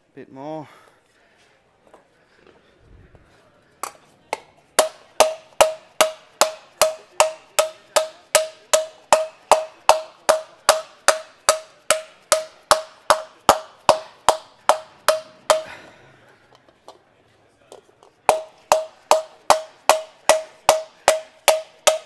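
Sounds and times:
hammer beating aluminium sheet: 3.8 - 15.8, 18.3 - 22.0.

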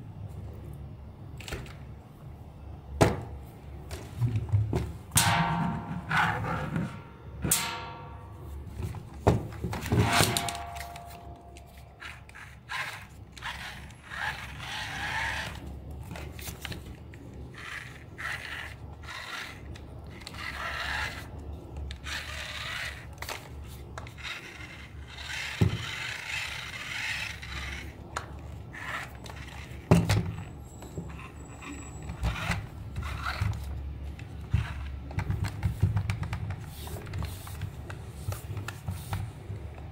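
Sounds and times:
plastic scraping and rubbing: 8.8 - 30.5, 32.1 - 39.9.

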